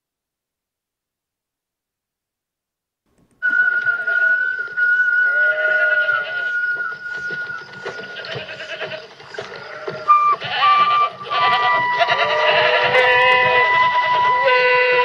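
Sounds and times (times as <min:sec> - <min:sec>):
goats bleating: 0:08.0 - 0:15.0.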